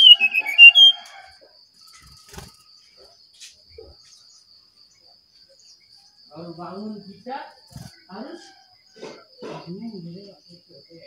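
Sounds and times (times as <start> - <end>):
bird whistling song: 0.0 - 1.2.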